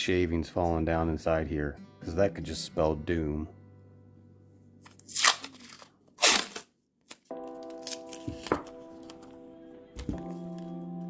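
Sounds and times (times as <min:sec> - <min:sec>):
background music: 0:00.0 - 0:06.4, 0:07.3 - 0:11.0
masking tape tearing: 0:04.9 - 0:08.5.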